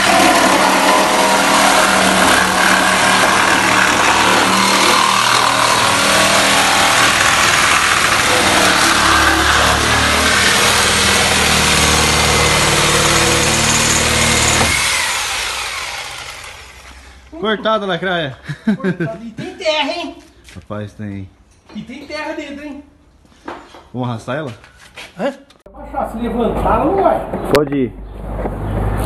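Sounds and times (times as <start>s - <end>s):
electric cutting tool cutting steel: 0.0s - 17.3s.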